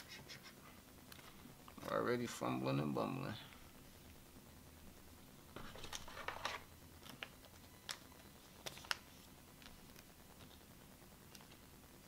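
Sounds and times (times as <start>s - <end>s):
plastic card sleeves rustling: 5.6s - 10.6s.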